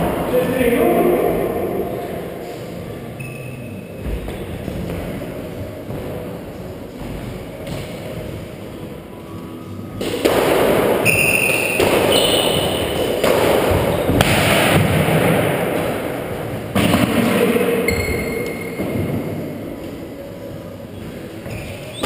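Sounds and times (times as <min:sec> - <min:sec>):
squash ball smacks: 0:10.0 - 0:16.0
shoes squeaking on wooden floor: 0:11.0 - 0:13.1, 0:13.7 - 0:14.2, 0:20.9 - 0:22.0.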